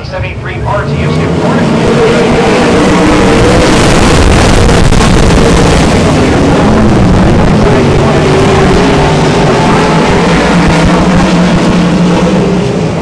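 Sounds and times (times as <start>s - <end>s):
racing car engines passing: 0.0s - 13.0s.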